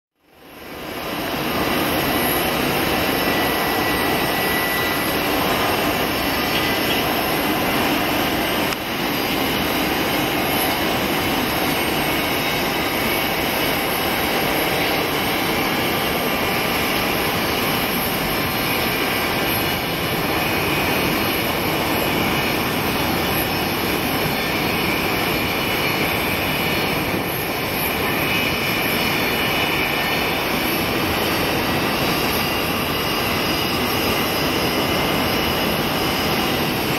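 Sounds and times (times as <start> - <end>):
faint high whine: 0.2 - 36.9
jet engine noise: 0.2 - 36.9.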